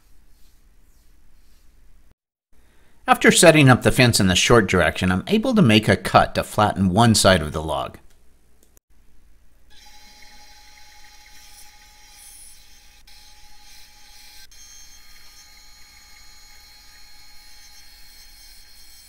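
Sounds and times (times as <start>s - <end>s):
bandsaw cutting log: 9.7s - 19.0s.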